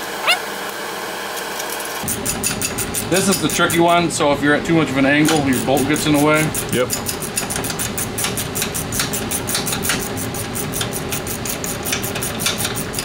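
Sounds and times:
ratcheting wrench clicking rapidly: 2.0 - 4.0, 5.2 - 13.0.

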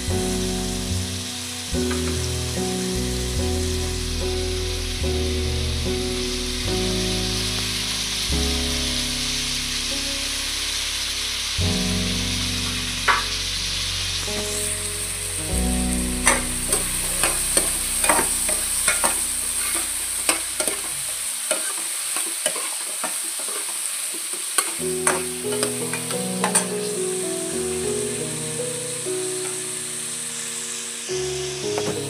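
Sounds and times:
potatoes sizzling in a pan: 0.0 - 32.0
steel spoon scraping a pan: 16.0 - 23.8.

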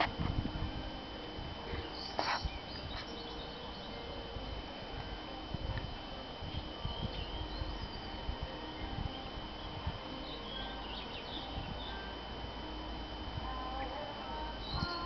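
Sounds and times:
thin high tone: 0.0 - 15.0
faint bird chirps: 1.7 - 4.3, 6.5 - 12.3.

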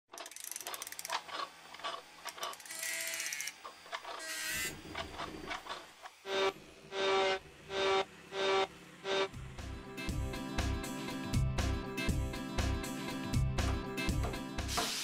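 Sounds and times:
mechanical clicks and ratcheting: 0.1 - 4.2
short mechanical whirs: 0.1 - 9.4.

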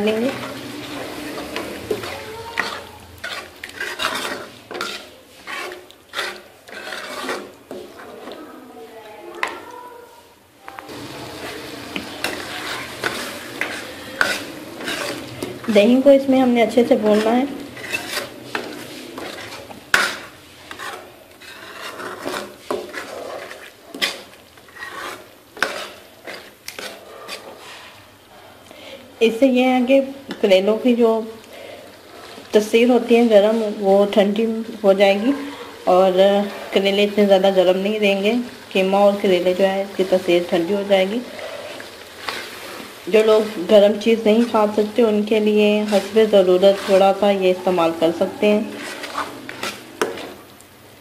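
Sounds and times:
metal spoon scraping a pot: 0.0 - 8.5, 10.9 - 28.0, 39.1 - 50.4.

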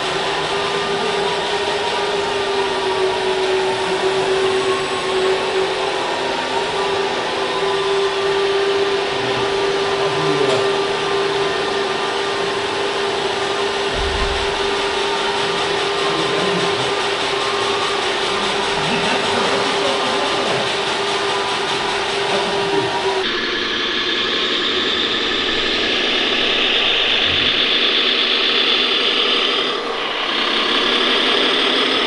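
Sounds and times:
hydraulic pump whine: 0.0 - 32.0
low bump: 13.9 - 15.1.

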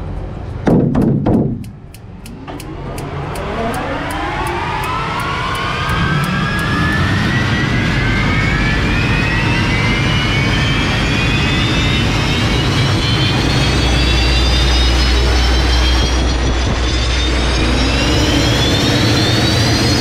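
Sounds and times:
fast regular ticking: 1.0 - 4.2
turbine engine spooling up: 1.5 - 20.0.

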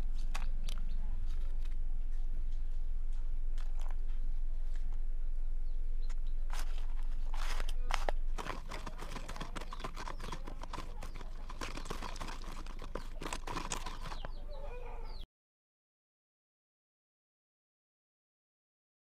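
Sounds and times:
stick scraping paste in plastic cup: 6.6 - 14.5.

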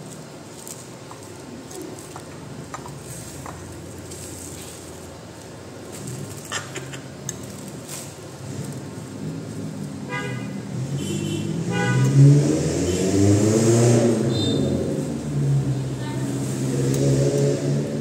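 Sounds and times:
vehicle engine passing: 8.3 - 18.0
horn toots: 10.1 - 14.9.

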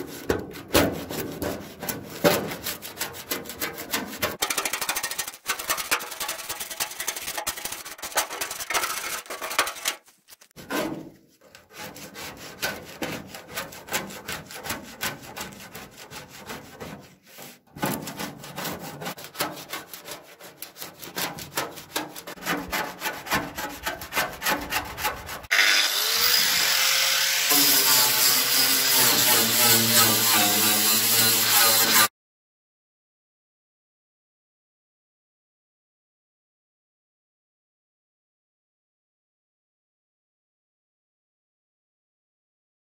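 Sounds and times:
scraper scraping paint off metal: 0.0 - 25.5, 27.4 - 32.1
angle grinder running: 25.5 - 32.1.

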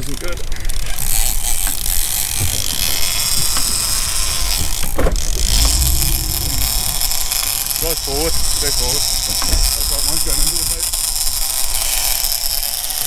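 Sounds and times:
fishing reel drag whining: 0.0 - 13.0.

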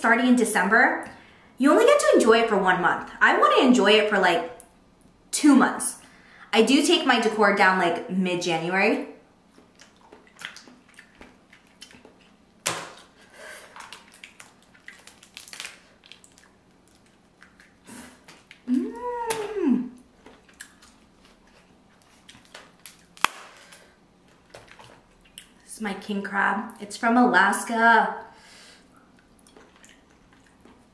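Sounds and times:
person humming: 18.6 - 20.0
shells cracking: 22.5 - 23.8.

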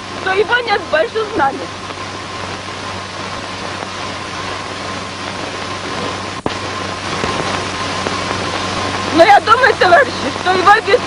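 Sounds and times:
film soundtrack hiss and hum: 0.0 - 11.0.

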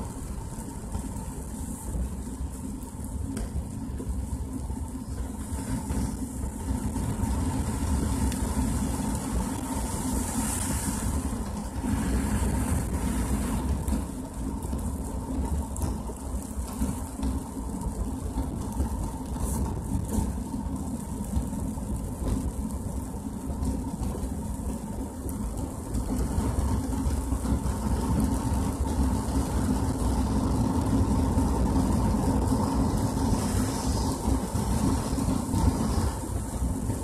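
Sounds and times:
car engine and tyres rumbling: 0.0 - 37.0
water hissing under tyres: 5.0 - 15.4, 30.6 - 37.0.

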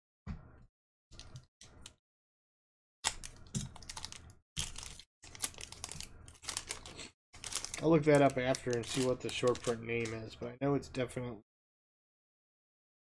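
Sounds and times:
card pack wrapper crinkling: 3.0 - 10.2.

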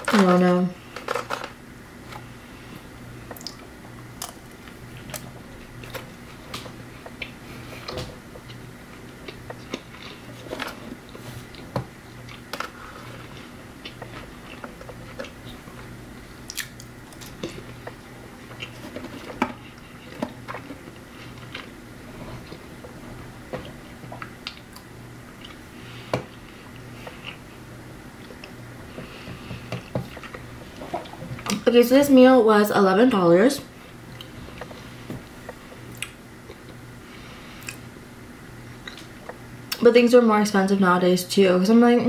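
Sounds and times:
steady low hum: 0.0 - 42.0
person chewing crunchy food: 3.3 - 23.0, 23.6 - 31.6.

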